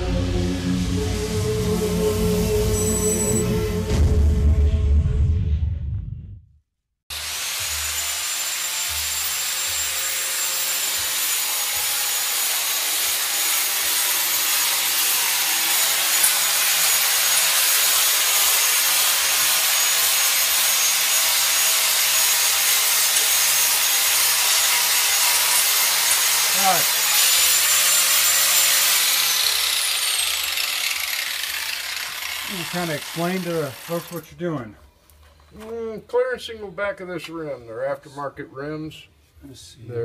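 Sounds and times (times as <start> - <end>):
grinder grinding metal: 7.1 - 34.4.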